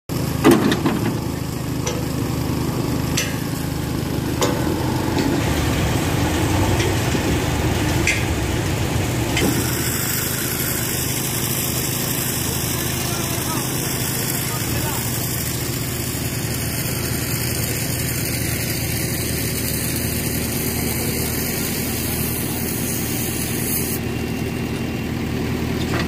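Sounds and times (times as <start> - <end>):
diesel engine running: 0.1 - 26.0
sharp metal knocks and clanks: 0.4 - 2.3, 3.1 - 3.6, 4.4 - 5.4, 8.0 - 8.4.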